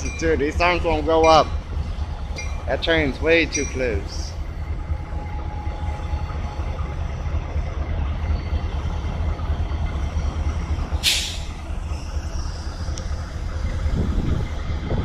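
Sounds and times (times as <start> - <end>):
freight train rumbling past: 0.0 - 15.0
short sharp hiss: 11.0 - 11.5.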